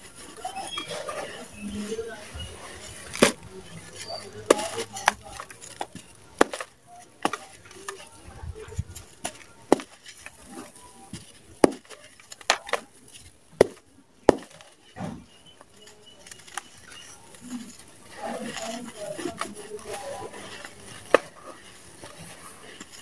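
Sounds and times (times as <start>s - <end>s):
sand grains sifting: 16.5s - 23.0s.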